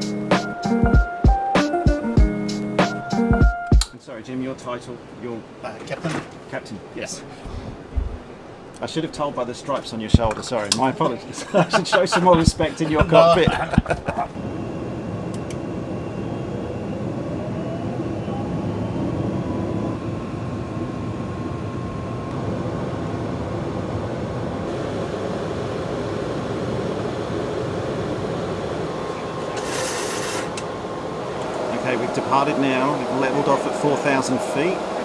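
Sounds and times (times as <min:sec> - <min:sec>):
jet engine roar with rising whine: 0:11.5 - 0:35.0
brief hiss: 0:29.6 - 0:30.6.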